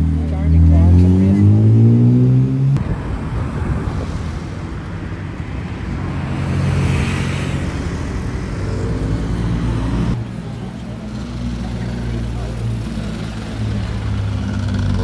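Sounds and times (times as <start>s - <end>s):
cars driving past: 0.0s - 15.0s
sports car engine passing: 0.4s - 4.6s.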